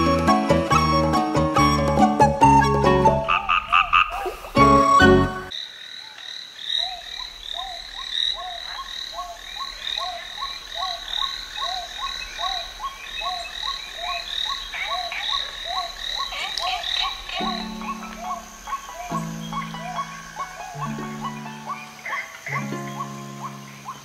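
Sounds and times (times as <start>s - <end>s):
frogs croaking: 3.2s - 24.0s
high chirping calls: 6.8s - 24.0s.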